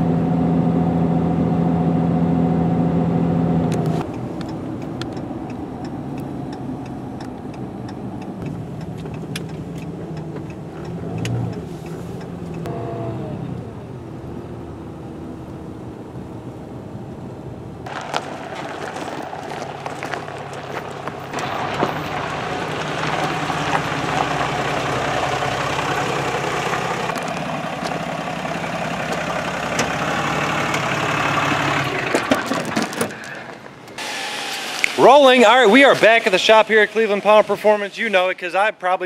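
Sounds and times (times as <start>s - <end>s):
truck engine running: 2.9s - 13.0s, 13.6s - 34.2s
tyres on gravel: 17.8s - 38.4s.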